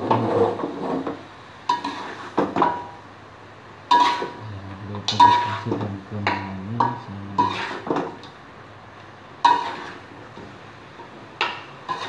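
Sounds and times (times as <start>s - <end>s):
spatula scraping in wok: 0.0s - 2.5s, 3.9s - 4.4s, 5.0s - 5.8s, 7.3s - 8.0s, 9.4s - 10.2s, 11.4s - 12.0s
spatula clanking on pan: 1.0s - 3.0s, 3.9s - 4.4s, 5.1s - 8.3s, 9.4s - 10.0s, 11.4s - 12.0s.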